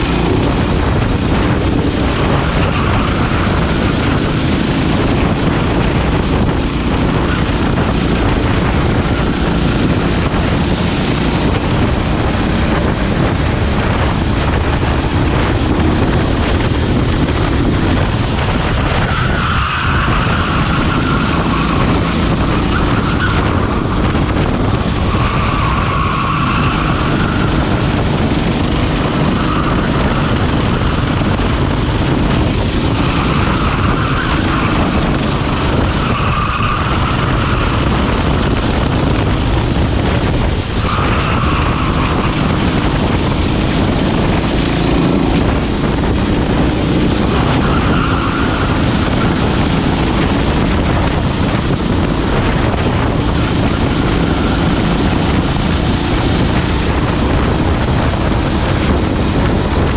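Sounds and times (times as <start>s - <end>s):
go-kart engine running hard: 0.0s - 59.9s
wind rushing over microphone: 0.0s - 59.9s.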